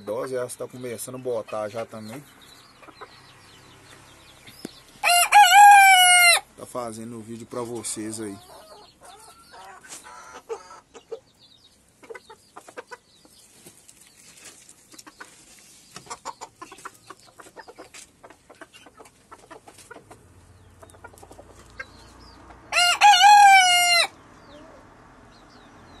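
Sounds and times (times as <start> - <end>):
soft hen clucks: 0.0 - 4.8, 7.7 - 14.2, 14.8 - 26.0
rooster crowing: 5.0 - 6.5, 22.7 - 24.2
scratching in dirt: 12.0 - 22.6.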